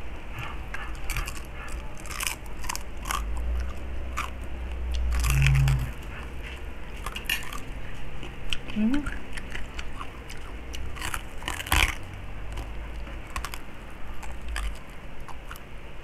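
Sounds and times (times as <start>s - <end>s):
low hum: 0.0s - 16.0s
crunching and chewing crispy skin: 0.3s - 16.0s.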